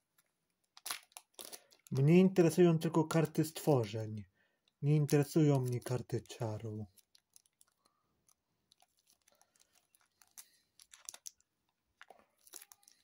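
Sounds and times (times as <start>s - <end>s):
plastic zip bag crinkling: 0.6s - 2.1s, 4.6s - 13.0s.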